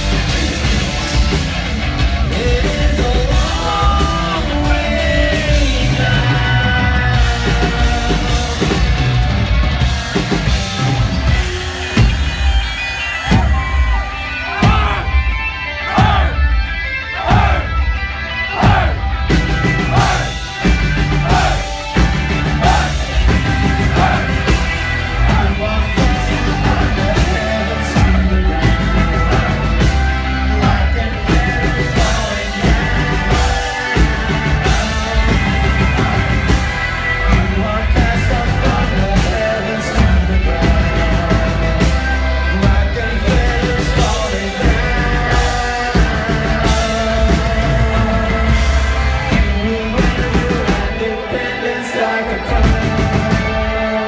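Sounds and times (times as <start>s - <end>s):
person singing: 0.0s - 9.2s, 22.4s - 54.0s
rock band playing live: 0.0s - 54.0s.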